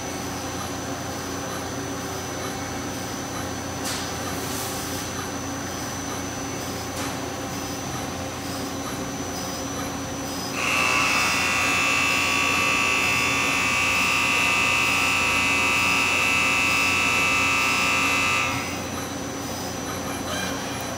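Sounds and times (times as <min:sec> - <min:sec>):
lathe machine hum: 0:10.5 - 0:19.4.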